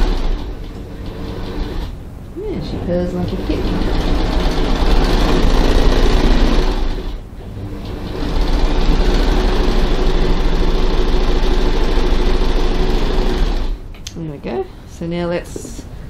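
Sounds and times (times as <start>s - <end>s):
sewing machine running: 0.0s - 2.0s, 3.2s - 13.8s.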